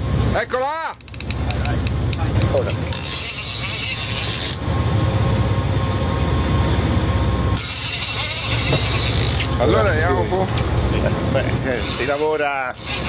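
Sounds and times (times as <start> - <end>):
boat engine humming: 0.0 - 13.0
fishing reel drag paying out line: 2.9 - 4.7, 7.6 - 9.5.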